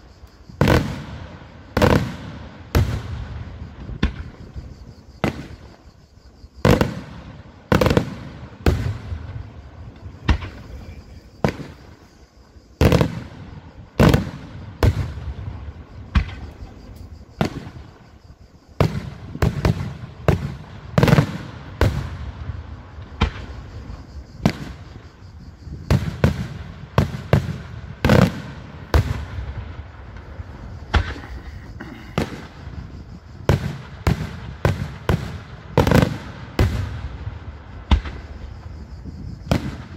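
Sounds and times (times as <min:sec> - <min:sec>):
fireworks bursting: 0:00.0 - 0:05.9, 0:06.6 - 0:38.7, 0:39.4 - 0:39.9.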